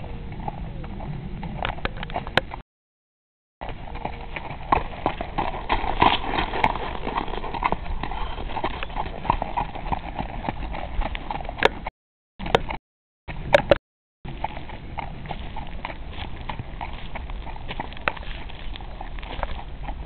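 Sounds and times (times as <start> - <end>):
horse hoofbeats on gravel: 3.6 - 12.8, 14.3 - 20.0.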